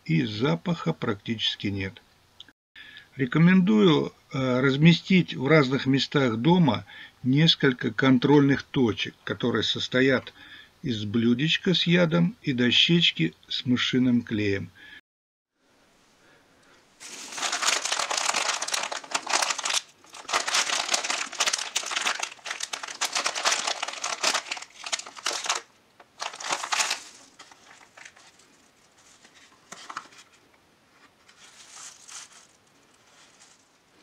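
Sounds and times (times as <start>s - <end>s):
plastic packaging crinkling: 17.0s - 30.4s, 31.2s - 34.0s.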